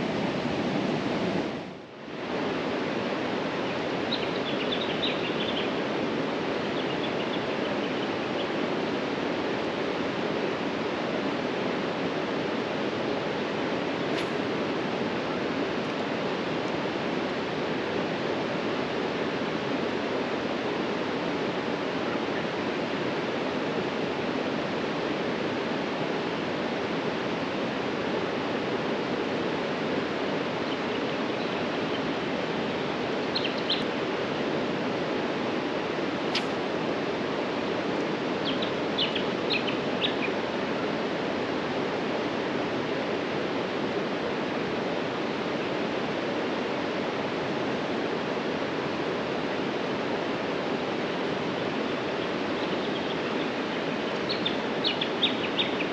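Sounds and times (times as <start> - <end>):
fast-flowing river roar: 0.0 - 14.0, 14.6 - 55.9
high bird chirps: 33.3 - 33.8
sharp click: 36.3 - 36.6.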